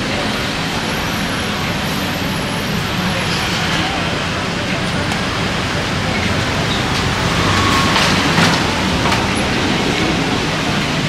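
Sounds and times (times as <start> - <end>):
street traffic noise: 0.0 - 11.0.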